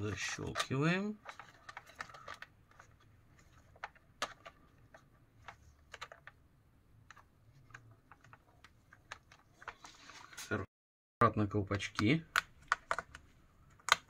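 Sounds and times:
small plastic clicks and taps: 0:11.9 - 0:14.0.

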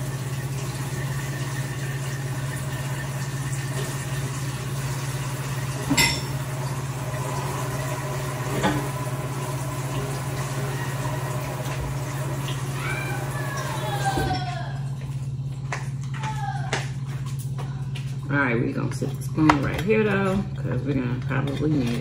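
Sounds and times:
kitchenware clinks: 0:05.9 - 0:06.4.

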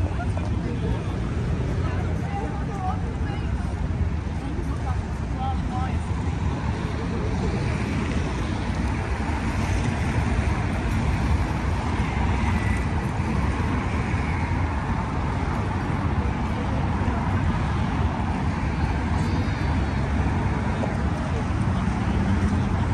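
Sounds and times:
road traffic: 0:00.0 - 0:22.9.

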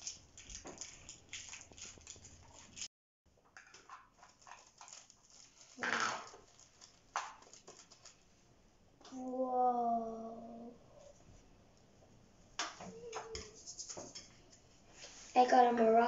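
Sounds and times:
plastic balls clicking and rattling: 0:03.6 - 0:08.1
shaking rustle: 0:13.3 - 0:14.3.

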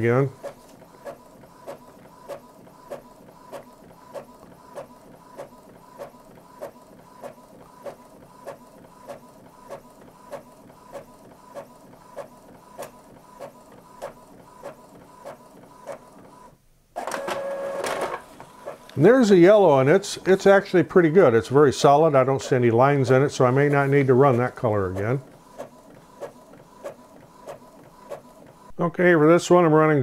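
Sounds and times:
printer motor whine: 0:17.0 - 0:19.0.

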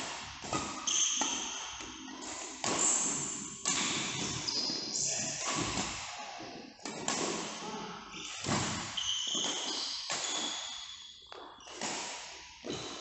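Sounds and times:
racket hitting shuttlecock: 0:00.0 - 0:06.0, 0:06.8 - 0:07.7, 0:08.3 - 0:12.9
shoes squeaking on floor: 0:00.5 - 0:05.8, 0:08.1 - 0:11.8, 0:12.6 - 0:13.0.

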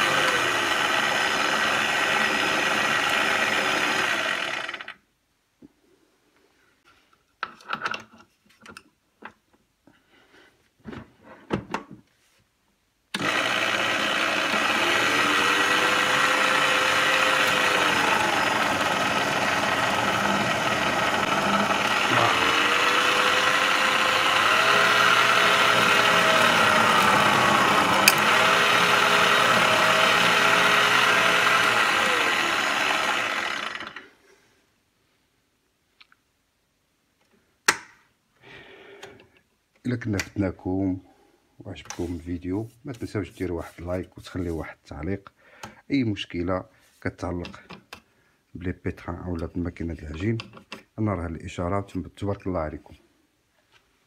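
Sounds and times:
stand mixer motor running: 0:00.0 - 0:04.9, 0:13.2 - 0:34.0.

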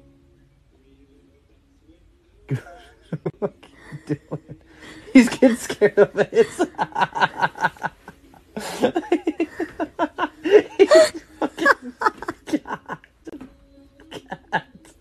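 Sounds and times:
person laughing hard: 0:02.5 - 0:13.4, 0:14.0 - 0:15.0.

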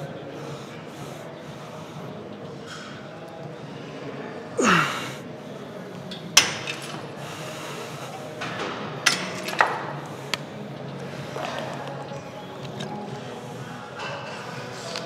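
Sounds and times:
person grunting: 0:04.6 - 0:05.2.

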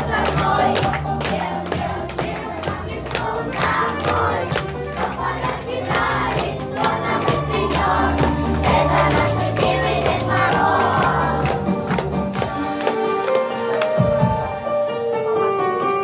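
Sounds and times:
children singing together: 0:00.0 - 0:11.6.

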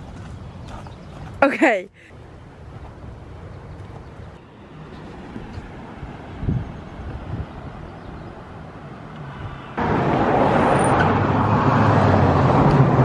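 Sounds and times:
road traffic noise: 0:00.0 - 0:13.0.

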